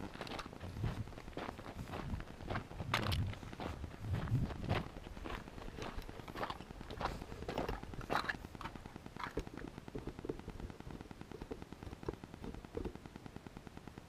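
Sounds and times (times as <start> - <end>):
footsteps crunching on gravel: 0.0 - 10.2.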